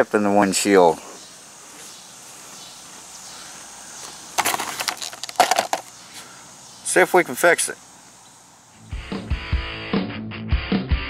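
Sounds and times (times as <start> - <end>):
faint background hiss: 0.0 - 8.9
handling crackles and clicks: 4.4 - 6.0.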